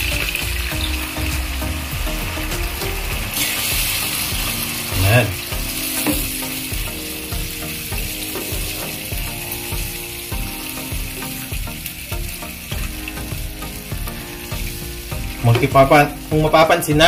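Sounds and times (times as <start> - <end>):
chicken sizzling in coconut milk: 0.0 - 17.0.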